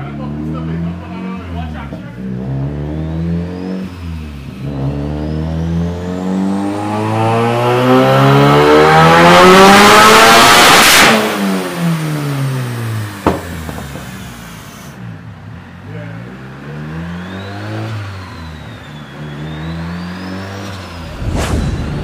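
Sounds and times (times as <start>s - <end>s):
car engine revving: 0.0s - 22.0s
high turbo whine: 16.4s - 22.0s.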